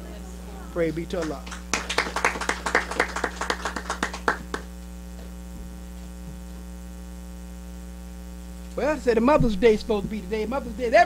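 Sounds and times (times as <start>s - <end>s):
electrical mains hum: 0.0s - 11.0s
hands clapping: 1.1s - 4.8s.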